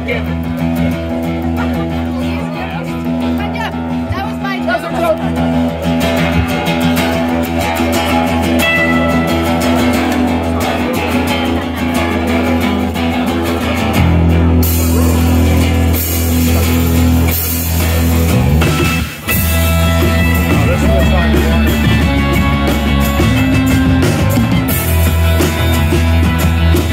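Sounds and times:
live rock band playing: 0:00.0 - 0:26.9
strummed acoustic guitar: 0:00.0 - 0:26.9
drum kit beat: 0:06.0 - 0:12.5, 0:13.8 - 0:26.9.

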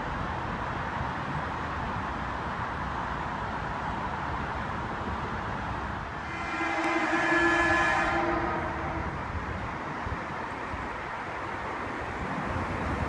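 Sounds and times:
outdoor background noise: 0:00.0 - 0:13.0
train horn: 0:06.2 - 0:09.8.

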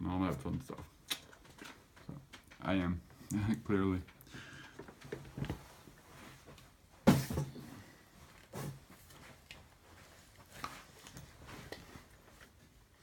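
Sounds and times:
knocks and shuffles: 0:04.9 - 0:12.9.

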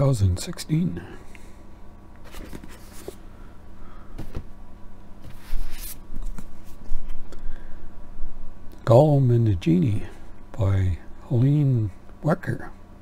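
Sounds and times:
book sliding rustle: 0:02.2 - 0:03.2, 0:05.2 - 0:07.2
books knocking and tapping: 0:04.2 - 0:04.5.

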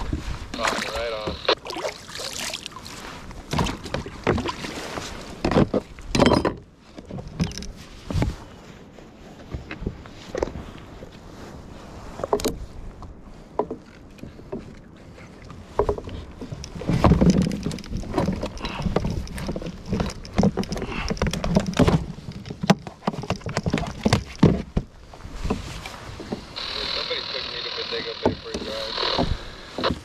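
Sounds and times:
clattering and rustling: 0:15.7 - 0:26.5.

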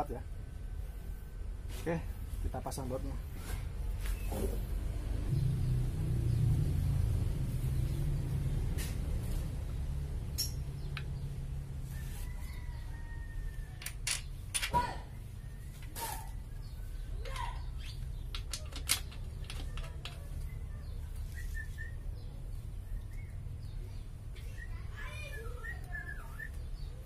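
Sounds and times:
metal bolts clicking and clinking: 0:10.3 - 0:11.0, 0:13.8 - 0:14.8, 0:17.2 - 0:20.4.

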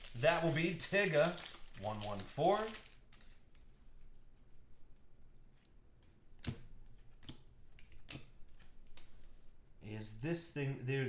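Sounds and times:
cards being handled: 0:00.0 - 0:03.8, 0:05.0 - 0:09.5.

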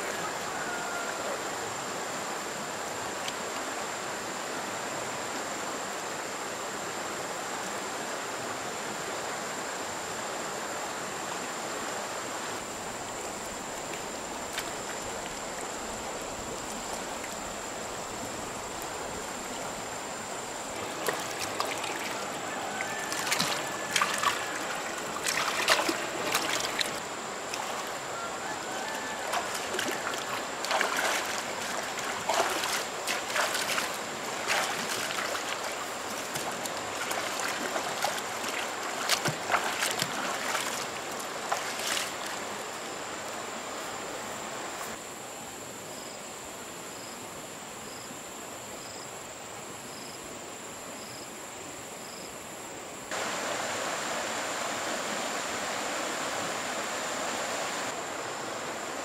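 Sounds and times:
flowing water: 0:00.0 - 0:45.8, 0:53.0 - 0:59.0
hands splashing in mud water: 0:20.8 - 0:22.2, 0:23.1 - 0:27.8, 0:29.2 - 0:42.4.

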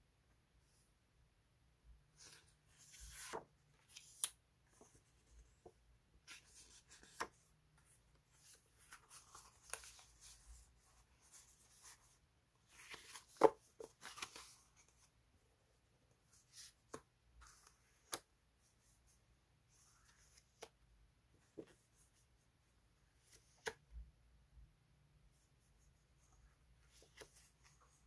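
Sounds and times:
paper sheets rustling: 0:08.3 - 0:14.9.

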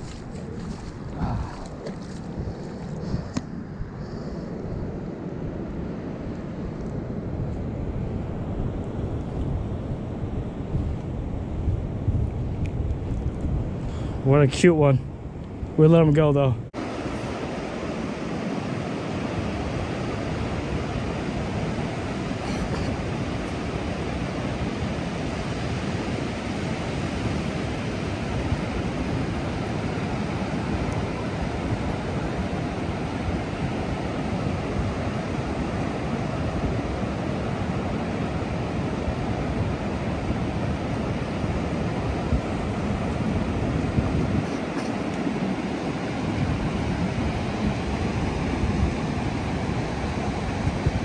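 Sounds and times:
wind rumble on the microphone: 0:00.0 - 0:51.0
ocean surf breaking on sand: 0:15.8 - 0:51.0.

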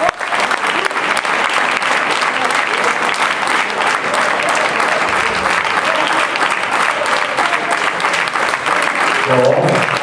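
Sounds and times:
crowd applauding: 0:00.0 - 0:10.0.

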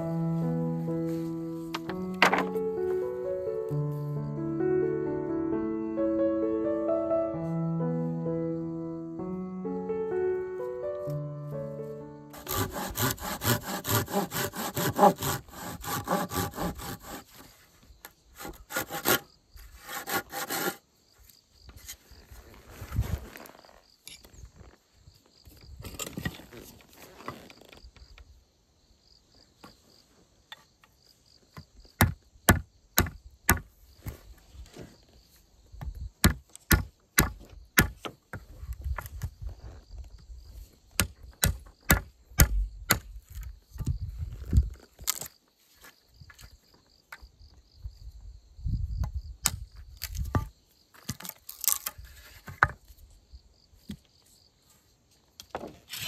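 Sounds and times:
insects chirping: 0:00.0 - 0:56.0
hand tool striking wood: 0:01.7 - 0:02.6, 0:32.0 - 0:33.7, 0:36.2 - 0:39.1, 0:41.0 - 0:43.2.

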